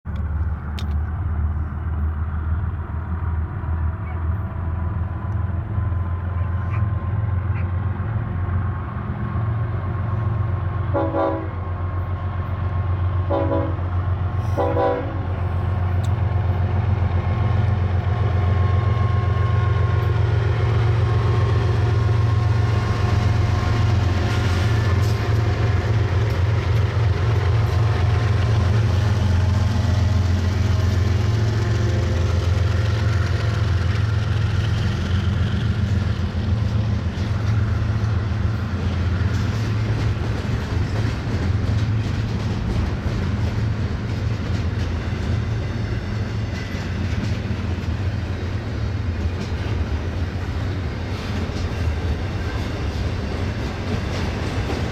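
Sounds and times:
diesel locomotive engines droning: 0.1 - 54.9
locomotive horn blasts: 10.9 - 11.7, 13.3 - 13.9, 14.5 - 15.4.

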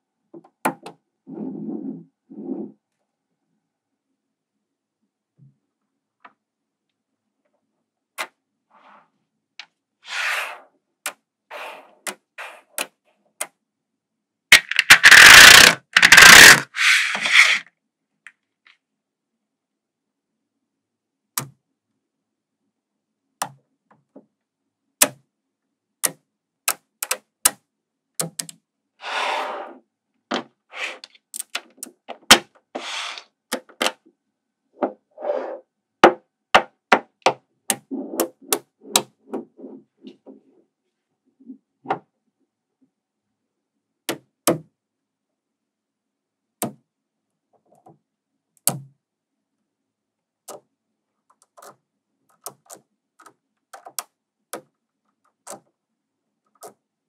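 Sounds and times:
magnetic balls clicking together: 14.5 - 16.6.

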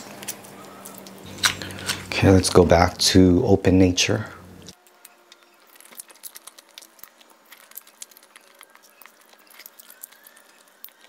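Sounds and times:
soft eating sounds: 0.0 - 11.0.

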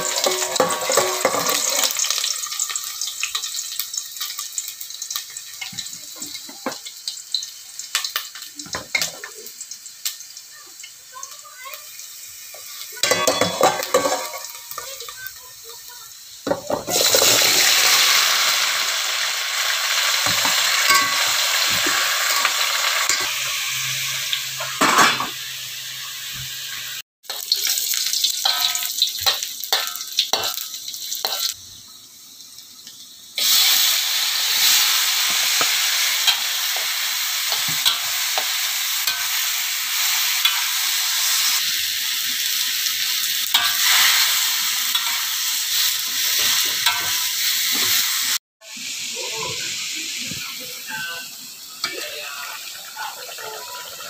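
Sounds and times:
spatula scraping pan: 0.0 - 2.0, 13.0 - 15.1
food sizzling in oil: 0.0 - 54.0.

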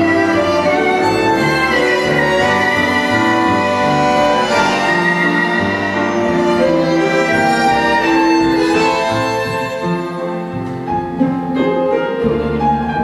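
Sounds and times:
bandoneons piano and double bass: 0.0 - 13.0
violin melody: 0.0 - 13.0.

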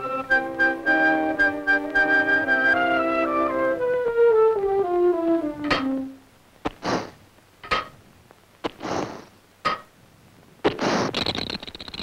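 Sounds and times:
short hissing puffs: 6.7 - 7.2, 8.7 - 9.4, 10.7 - 11.3.

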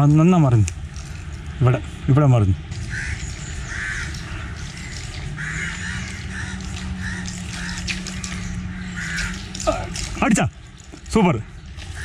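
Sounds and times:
crows cawing: 2.7 - 10.2, 11.8 - 12.0.

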